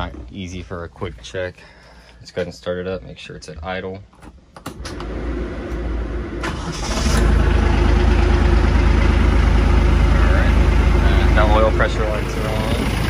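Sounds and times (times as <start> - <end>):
diesel engine idling: 5.1 - 13.0
tractor starter cranking: 6.4 - 7.8.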